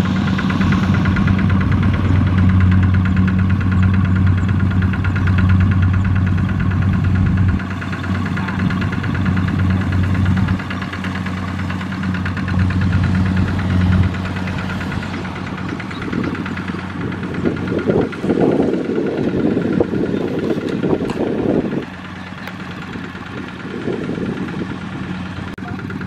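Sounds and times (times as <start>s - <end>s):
diesel tractor engine chugging: 0.0s - 26.0s.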